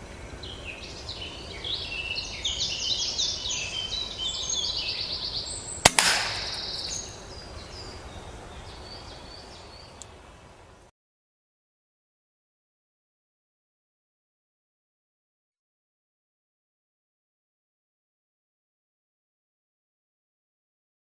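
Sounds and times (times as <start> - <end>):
songbird chirping: 0.0 - 10.8
air rifle shot crack: 5.8 - 7.1
pellet impact knock: 5.9 - 6.8.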